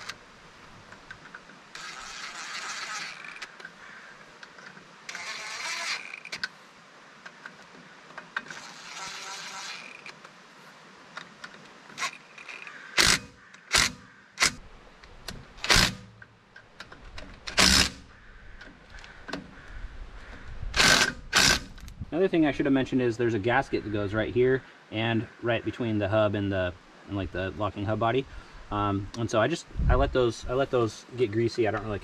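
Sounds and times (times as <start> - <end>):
cordless drill whirring: 1.8 - 3.5, 5.1 - 6.3, 8.5 - 10.1.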